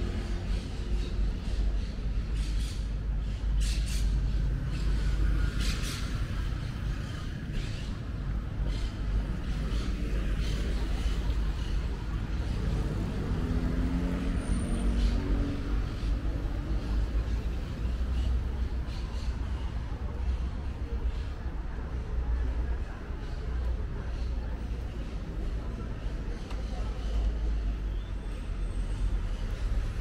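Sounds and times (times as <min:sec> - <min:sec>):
traffic rumble: 0:00.0 - 0:30.0
passing vehicle engine: 0:09.2 - 0:20.7.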